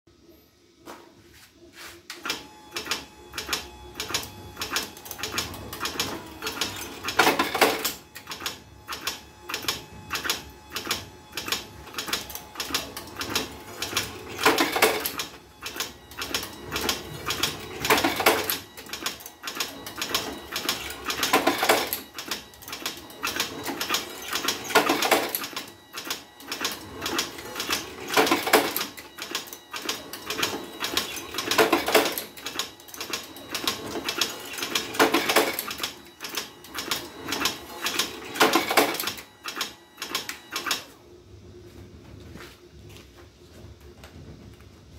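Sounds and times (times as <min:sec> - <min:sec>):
faint motor hum: 0:00.1 - 0:44.9
machine clicking mechanism: 0:02.1 - 0:40.9.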